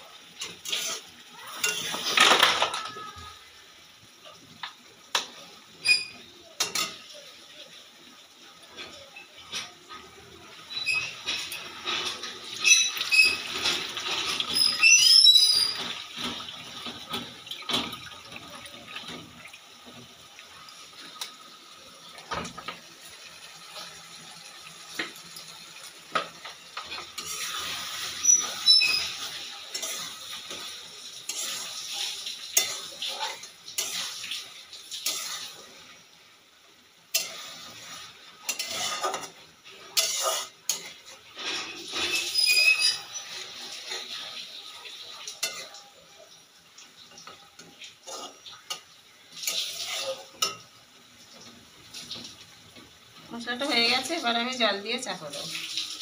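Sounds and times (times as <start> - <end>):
frying sizzle: 0.0 - 56.0
metal spatula scraping steel wok: 0.4 - 2.2, 10.7 - 16.4, 26.9 - 35.7, 37.1 - 44.3, 45.3 - 45.8, 47.2 - 50.7.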